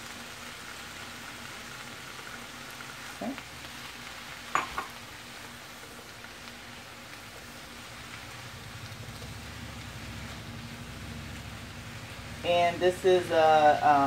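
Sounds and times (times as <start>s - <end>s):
vegetables sizzling in a pan: 0.0s - 14.0s
utensil knocking against pan: 4.5s - 4.9s.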